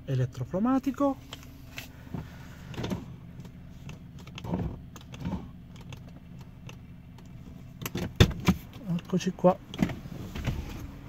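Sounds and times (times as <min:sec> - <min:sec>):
idling engine hum: 0:00.0 - 0:11.0
light clicks and taps: 0:08.6 - 0:10.0.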